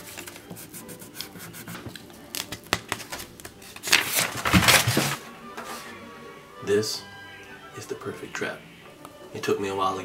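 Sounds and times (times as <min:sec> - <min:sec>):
crayon scratching on paper: 0:00.0 - 0:01.9
paper rustling: 0:00.0 - 0:05.9.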